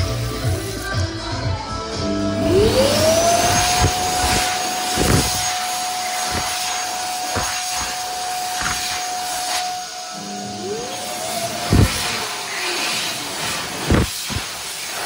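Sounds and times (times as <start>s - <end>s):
hand dryer motor whine: 2.0s - 15.0s
rush of air: 2.4s - 9.7s, 11.2s - 15.0s.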